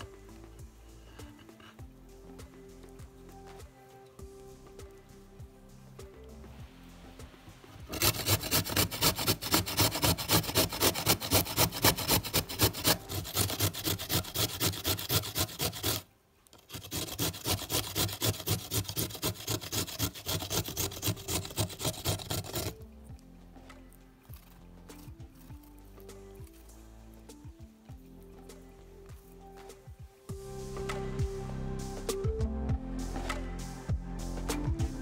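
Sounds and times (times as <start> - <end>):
carrot grated on metal grater: 7.9 - 16.0, 16.6 - 22.8.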